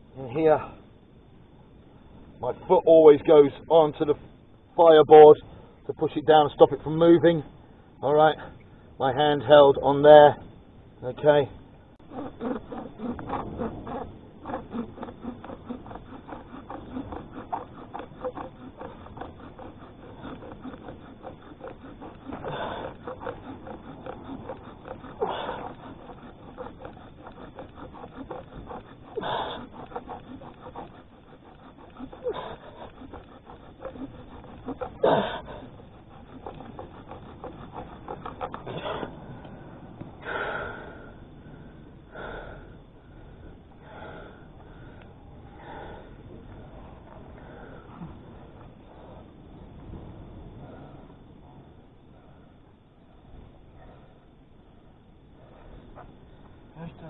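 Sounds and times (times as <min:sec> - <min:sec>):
wood rubbing on wood: 0:11.0 - 0:40.1
loud breaths: 0:12.0 - 0:49.6.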